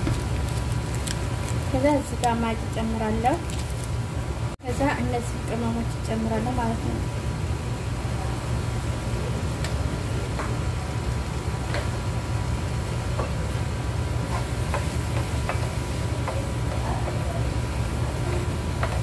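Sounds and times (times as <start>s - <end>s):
sauce sizzling in frying pan: 12.6s - 19.0s.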